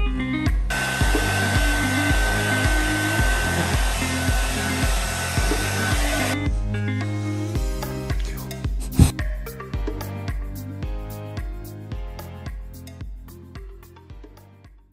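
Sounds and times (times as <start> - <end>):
background music with steady beat: 0.0 - 14.9
hair dryer blowing: 0.7 - 6.4, 8.8 - 9.1.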